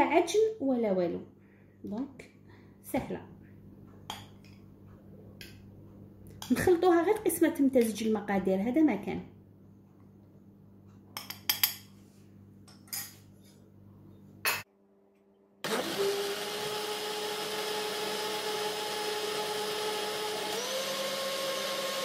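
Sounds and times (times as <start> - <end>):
electric blender running: 15.6 - 22.0.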